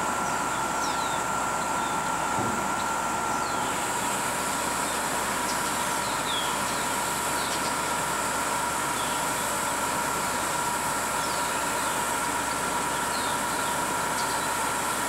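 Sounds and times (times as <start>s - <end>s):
bus engine hum: 0.0s - 7.6s.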